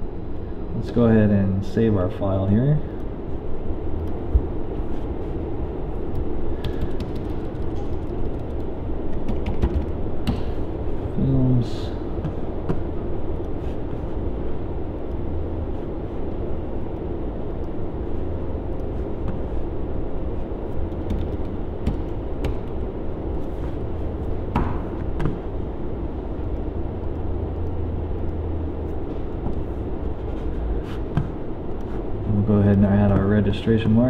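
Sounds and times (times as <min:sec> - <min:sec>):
faint steady hum: 0:00.0 - 0:34.0
low background rumble: 0:00.0 - 0:34.0.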